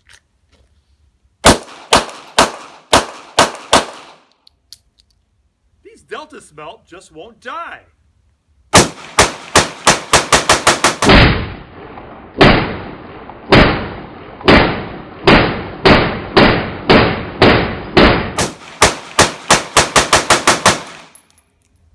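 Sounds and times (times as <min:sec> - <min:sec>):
rifle shots: 0:01.4 - 0:04.3, 0:08.7 - 0:21.2.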